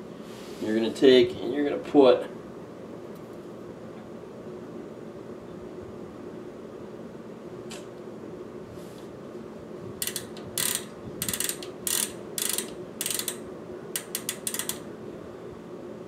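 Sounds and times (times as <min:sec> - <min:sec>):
bicycle hub ratcheting: 0:10.0 - 0:14.9.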